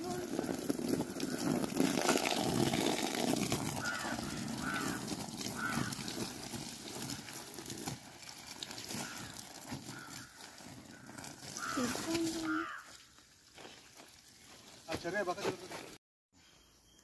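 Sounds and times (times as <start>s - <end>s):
hose water splashing on plastic: 0.0s - 15.7s
bird calling: 3.8s - 6.2s, 9.0s - 13.2s.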